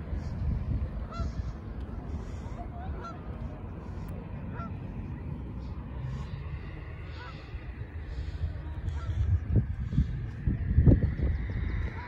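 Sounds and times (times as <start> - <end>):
geese honking: 1.0 - 1.6, 2.2 - 5.0, 7.0 - 7.5, 8.9 - 9.2.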